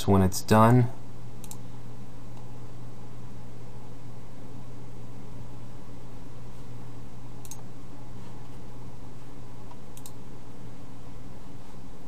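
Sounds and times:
low hum and hiss: 0.0 - 12.0
computer mouse clicks: 1.4 - 1.6, 7.4 - 7.6, 9.7 - 10.2.

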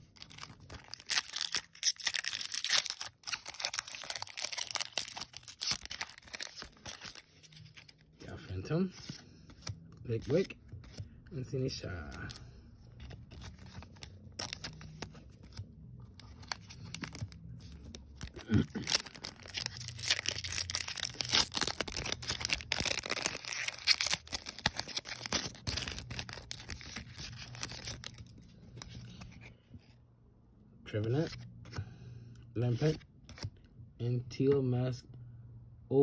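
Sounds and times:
foil pack tearing and crinkling: 0.2 - 7.3, 18.1 - 28.3.

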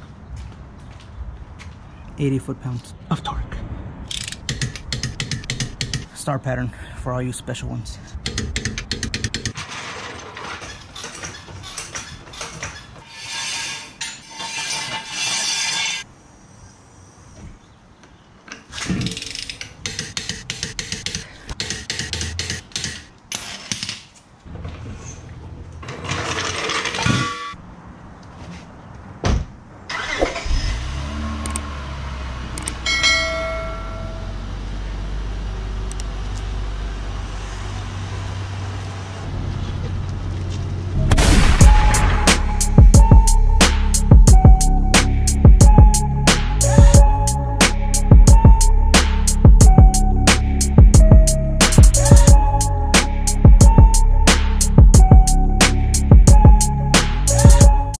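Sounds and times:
car engine starting and idling: 29.9 - 42.7.

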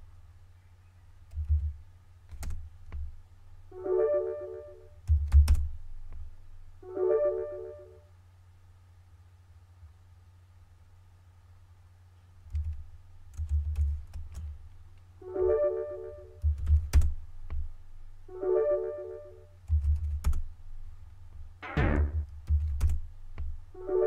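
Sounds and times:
typing on computer keyboard: 2.3 - 2.6, 5.1 - 5.7, 12.5 - 14.5, 16.4 - 17.6, 19.7 - 20.4, 22.4 - 23.0.

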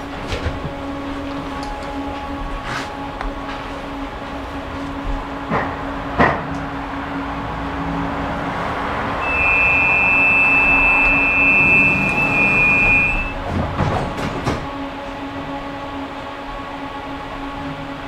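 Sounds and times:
tram running noise: 0.0 - 18.0
high-pitched squeal: 9.2 - 13.4.

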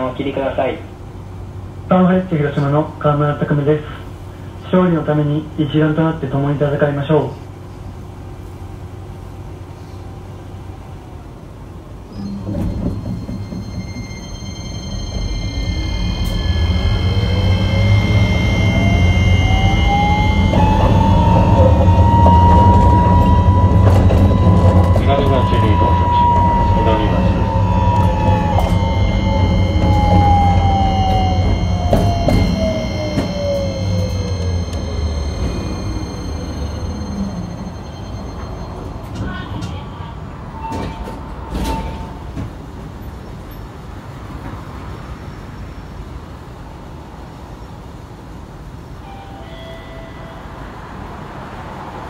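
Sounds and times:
tram motor whine rising: 12.0 - 39.2
short ringing tone: 12.2 - 39.1.

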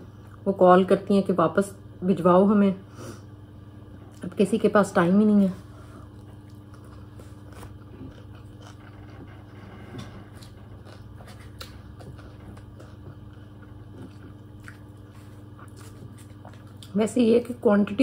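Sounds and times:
steady low hum: 0.0 - 18.0
person chewing food: 5.7 - 17.0.

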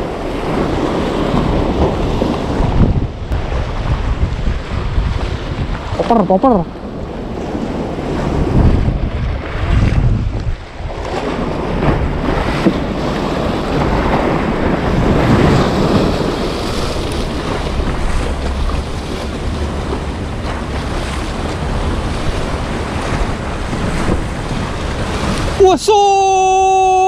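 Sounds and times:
wind buffeting microphone: 0.0 - 25.8
sea waves breaking on concrete: 0.0 - 27.0.

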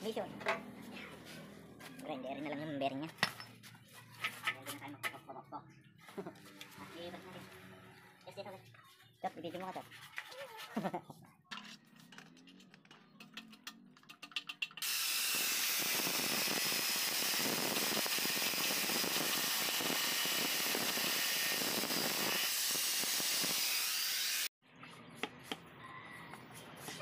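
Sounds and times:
angle grinder cutting metal: 14.8 - 24.5.

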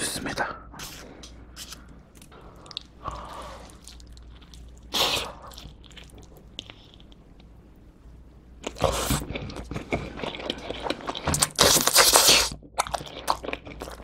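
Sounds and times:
quiet chewing: 0.8 - 7.6.

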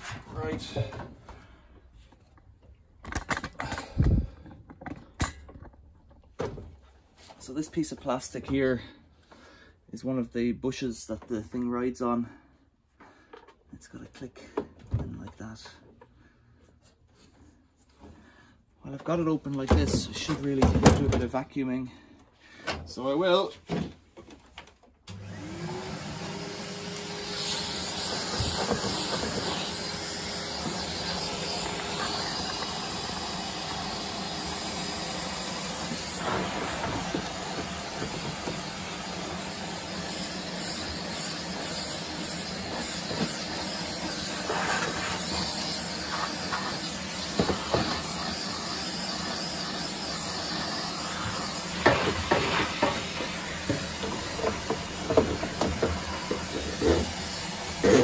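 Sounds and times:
vacuum cleaner motor running: 25.1 - 58.0.

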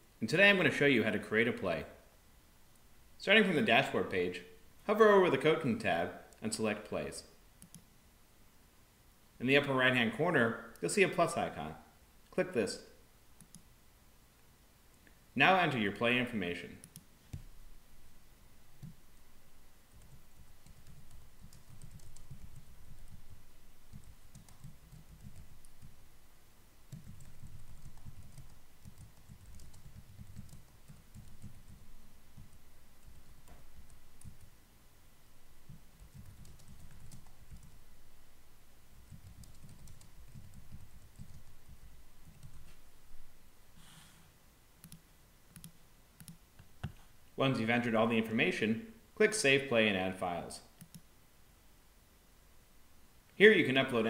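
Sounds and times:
typing on computer keyboard: 20.0 - 26.0, 26.9 - 31.8, 35.7 - 37.8, 39.1 - 41.5, 42.2 - 42.6, 44.8 - 46.4
sharp keyboard click: 26.9 - 31.8, 39.1 - 41.5.

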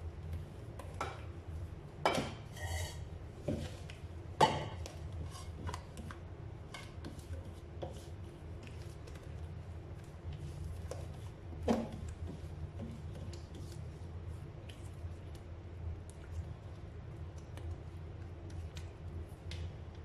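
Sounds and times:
spatula scraping batter in bowl: 2.5 - 3.9, 4.8 - 6.1.

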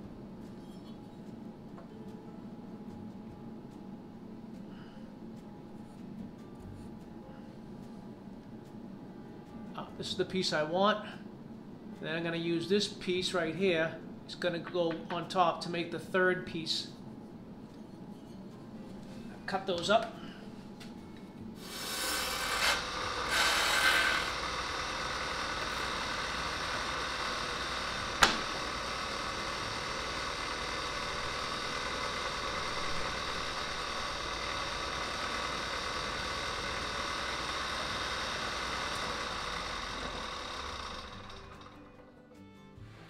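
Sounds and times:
table saw cutting plywood: 21.6 - 41.7
table saw running: 21.6 - 41.9.

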